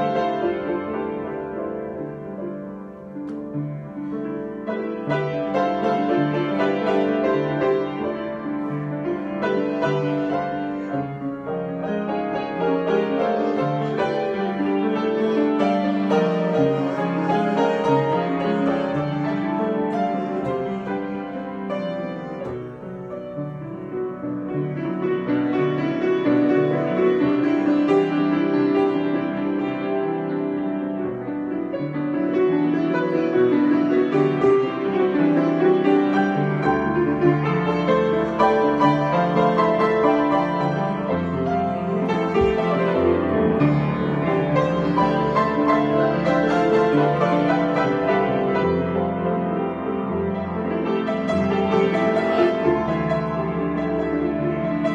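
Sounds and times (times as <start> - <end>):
grand piano playing: 0.0 - 54.9.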